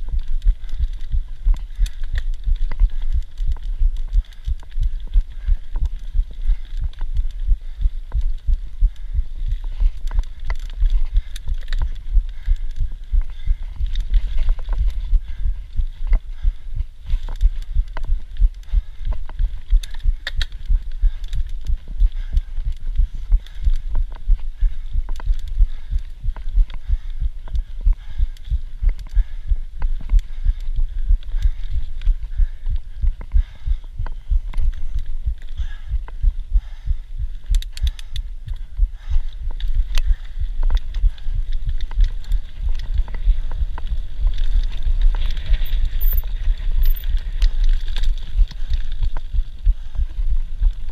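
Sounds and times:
bike clicks and rattles: 0:00.0 - 0:50.8
tyres rumbling on dirt trail: 0:39.0 - 0:50.0.

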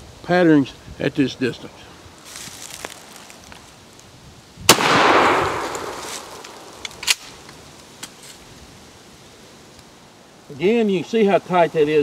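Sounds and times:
shotgun blast: 0:04.7 - 0:07.2.

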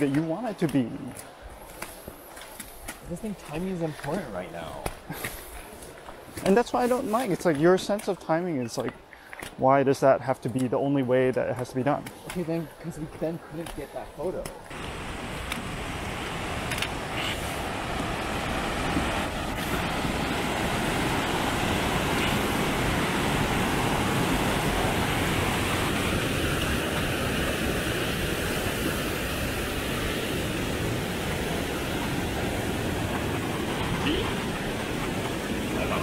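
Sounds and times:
river rapids rushing: 0:14.7 - 0:36.0.

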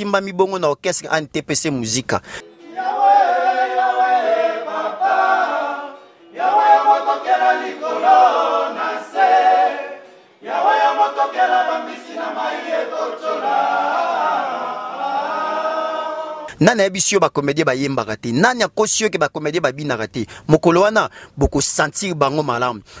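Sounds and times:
men singing in harmony: 0:02.5 - 0:16.5.

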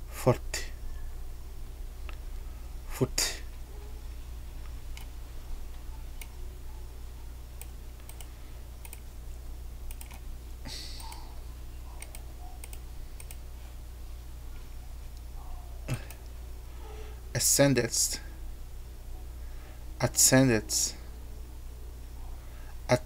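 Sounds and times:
steady low hum: 0:00.0 - 0:23.0
keyboard typing: 0:07.6 - 0:09.0, 0:09.9 - 0:10.2, 0:12.0 - 0:13.4
mouse clicks: 0:12.0 - 0:13.4.

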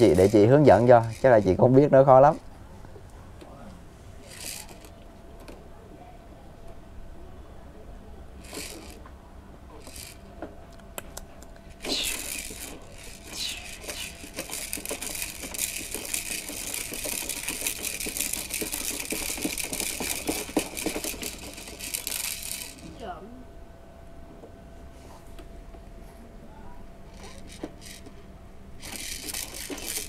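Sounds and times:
small hard objects rattling: 0:08.4 - 0:09.0, 0:11.8 - 0:22.9, 0:28.8 - 0:30.0.

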